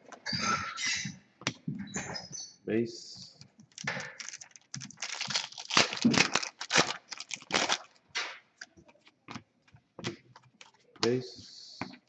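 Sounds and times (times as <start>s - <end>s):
foil wrapper crinkling and tearing: 3.7s - 8.0s.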